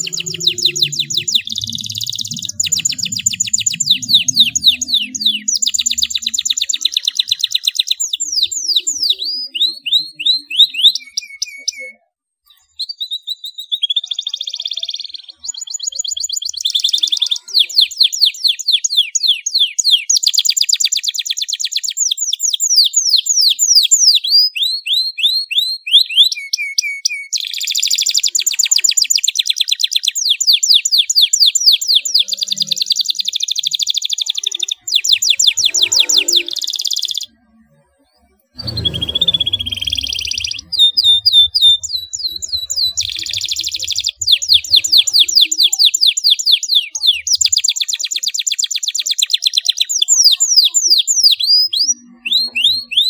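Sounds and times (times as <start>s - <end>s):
faint low rumble: 0.0s - 6.4s, 38.6s - 43.0s
canary singing trills: 0.0s - 53.0s.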